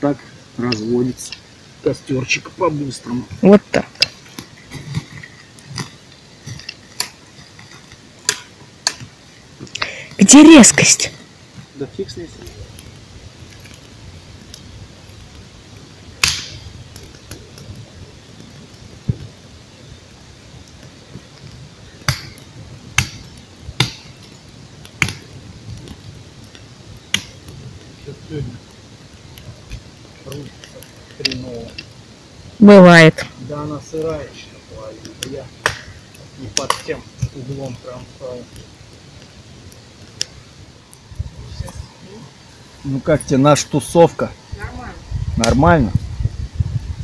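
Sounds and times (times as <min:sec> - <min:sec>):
campfire crackling: 0:00.0 - 0:47.0
machete chopping a branch: 0:16.2 - 0:16.6.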